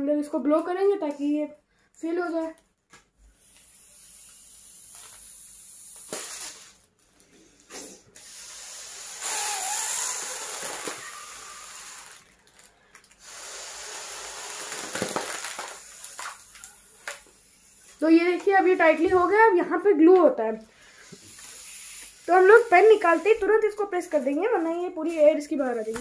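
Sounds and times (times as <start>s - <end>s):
air blown into foil balloon: 3.3s - 18.3s, 20.8s - 24.3s.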